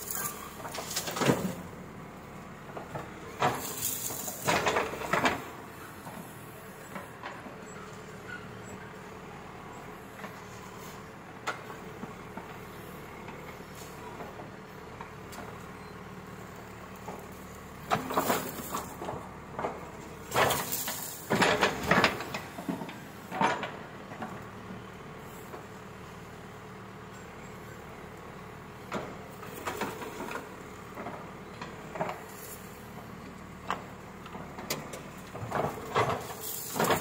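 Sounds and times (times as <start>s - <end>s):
diesel engine running: 0.0s - 37.0s
bucket clanks and rattles: 35.5s - 37.0s.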